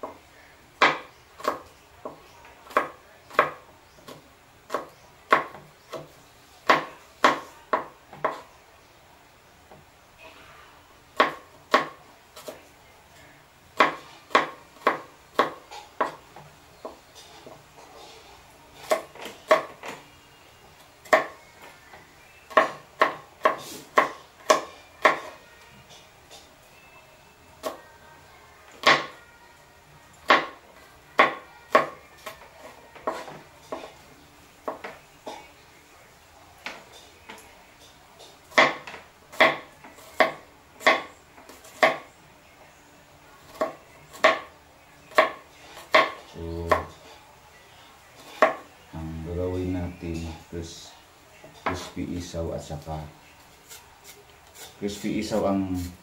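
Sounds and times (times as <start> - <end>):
knife chopping on plastic board: 4.7 - 8.4, 13.8 - 16.2, 18.8 - 19.8, 22.5 - 25.3, 38.5 - 42.0, 43.5 - 44.5, 45.1 - 46.9.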